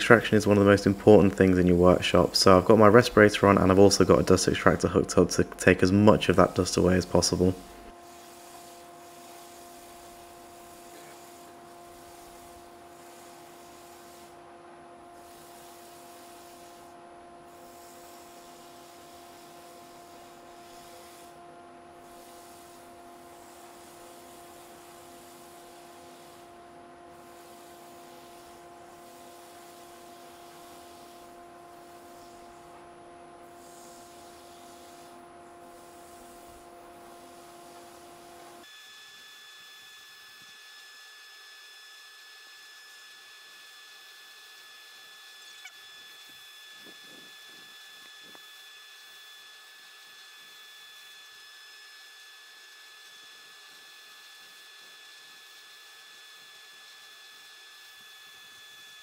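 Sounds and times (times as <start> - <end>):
lathe and dust extractor hum: 0.0 - 14.1
sandpaper hissing on wood: 0.1 - 4.8, 6.1 - 14.4, 15.2 - 16.9, 17.5 - 21.4, 22.0 - 32.8, 33.5 - 38.6.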